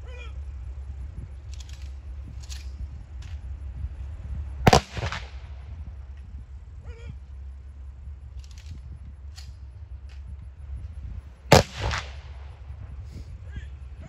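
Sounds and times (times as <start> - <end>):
rifle volley crack: 4.6 - 6.4, 11.4 - 13.9.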